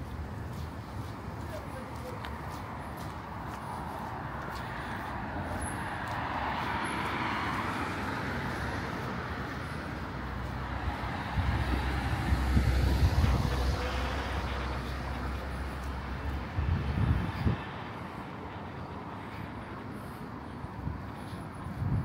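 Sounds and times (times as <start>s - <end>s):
road traffic noise: 0.0s - 22.0s
vehicle passing close: 4.8s - 20.2s.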